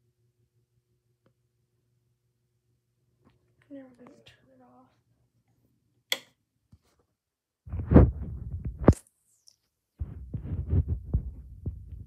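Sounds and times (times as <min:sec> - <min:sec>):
wall switch click: 0:06.1 - 0:06.4
low rumbling and thumping: 0:10.0 - 0:12.0.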